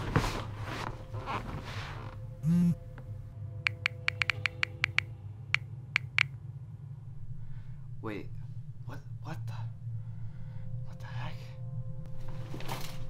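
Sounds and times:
low electrical hum: 0:00.0 - 0:13.0
buttons clicking: 0:03.7 - 0:05.1, 0:06.0 - 0:06.3.

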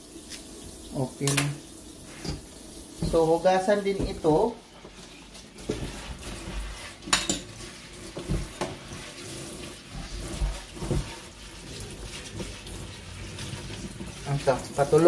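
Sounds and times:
green onions rubbed under water: 0:05.7 - 0:07.1, 0:07.7 - 0:15.0.

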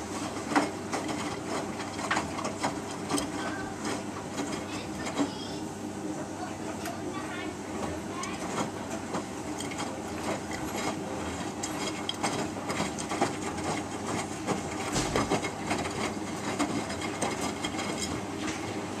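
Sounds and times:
washing machine drum turning: 0:00.0 - 0:05.5, 0:07.6 - 0:19.0
wet laundry knocking in drum: 0:14.8 - 0:15.9.

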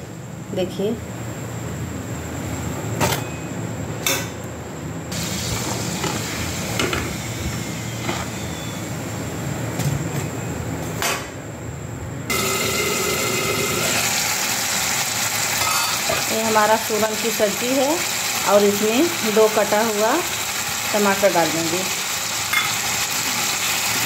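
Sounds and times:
loud cooking sound: 0:01.4 - 0:24.0
food deep-frying in oil: 0:05.1 - 0:09.0, 0:12.3 - 0:24.0.

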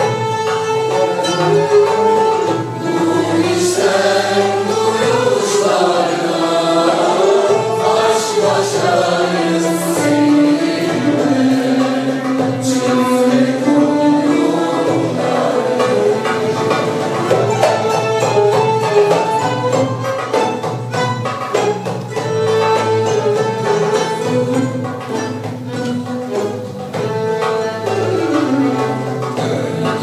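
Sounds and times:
frame drum: 0:00.0 - 0:30.0
traditional string ensemble: 0:00.0 - 0:30.0
mixed choir singing: 0:02.5 - 0:18.1, 0:23.0 - 0:25.4, 0:28.2 - 0:30.0.

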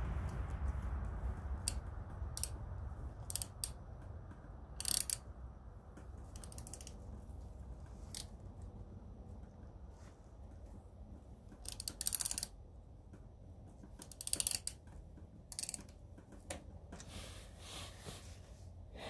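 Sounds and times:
low hum: 0:00.0 - 0:11.6
wrench clicking and scraping: 0:01.6 - 0:02.6, 0:03.2 - 0:03.8, 0:04.4 - 0:05.3, 0:06.2 - 0:08.4, 0:11.5 - 0:12.6, 0:13.8 - 0:16.4.

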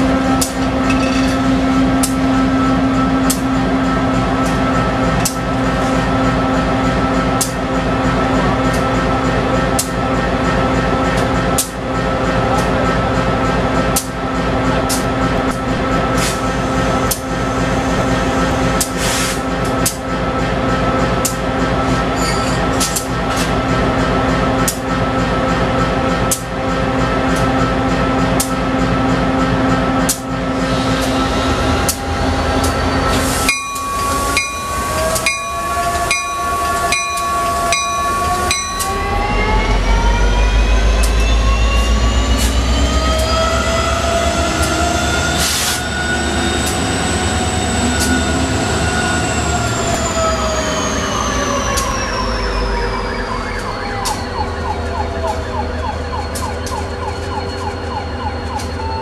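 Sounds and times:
locomotive bell ringing: 0:00.0 - 0:11.1, 0:31.2 - 0:41.9
train wheels squealing: 0:00.0 - 0:25.6, 0:27.3 - 0:59.0
diesel locomotive rumble: 0:00.0 - 0:59.0.

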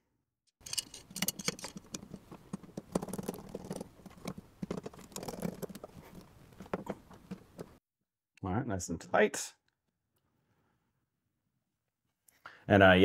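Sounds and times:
screwdriver clicks and scrapes: 0:00.6 - 0:06.3.

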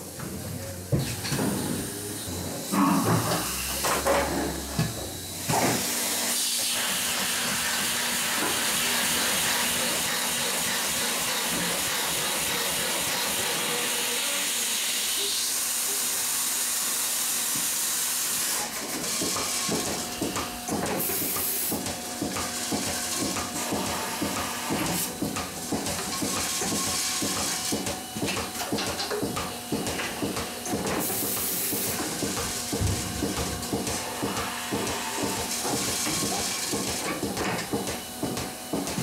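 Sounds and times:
scattered knocks and clicks: 0:18.7 - 0:39.0.

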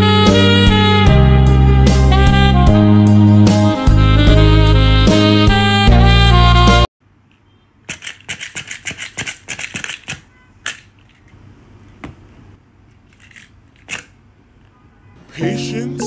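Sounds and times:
saxophone music: 0:00.0 - 0:06.9
hand-held tool clicking: 0:07.9 - 0:11.2.

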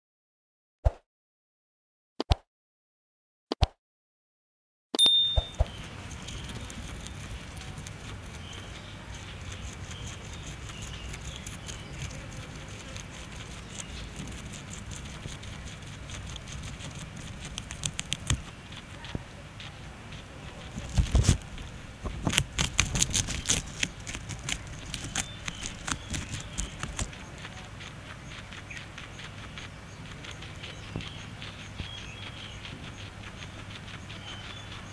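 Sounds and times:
sharp click: 0:05.0 - 0:05.7
guinea pig chewing grass: 0:05.0 - 0:34.9.

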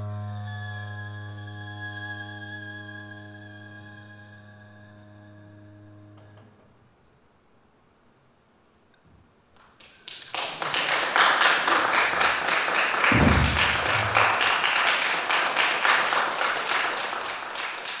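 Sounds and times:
audience applauding: 0:09.6 - 0:18.0
low thud: 0:13.1 - 0:14.5.

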